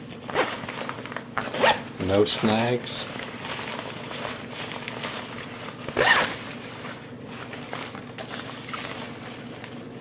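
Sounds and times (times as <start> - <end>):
zipper sliding: 1.4 - 1.8, 6.0 - 6.4.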